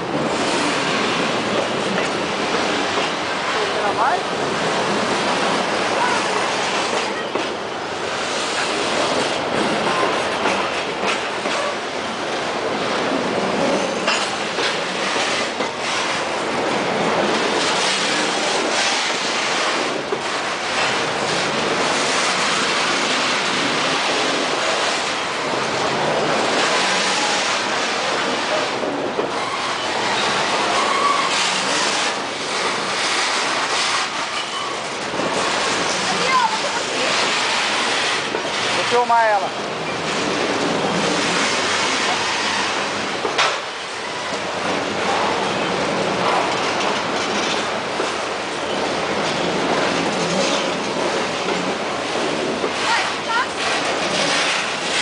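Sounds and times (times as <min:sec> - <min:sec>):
freight train wheels clattering: 0:00.0 - 0:55.0
wheel squeal: 0:29.3 - 0:31.8.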